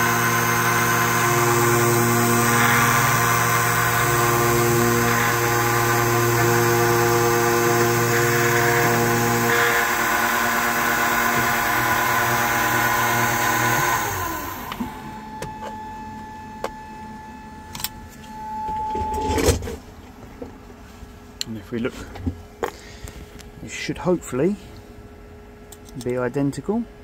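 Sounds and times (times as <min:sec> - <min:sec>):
key-cutting machine running: 0:00.0 - 0:15.0.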